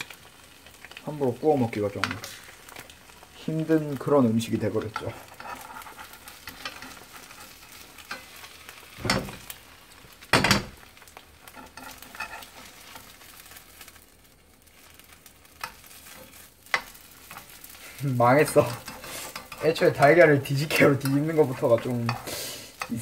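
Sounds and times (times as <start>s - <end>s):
egg sizzling in a pan: 0.0s - 23.0s
tongs scraping a pan: 4.5s - 9.6s, 10.3s - 13.9s, 14.8s - 23.0s.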